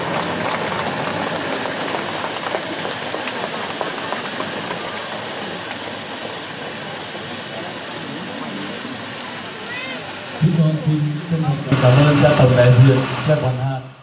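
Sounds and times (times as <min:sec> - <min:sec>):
crowd applauding: 0:00.0 - 0:07.6.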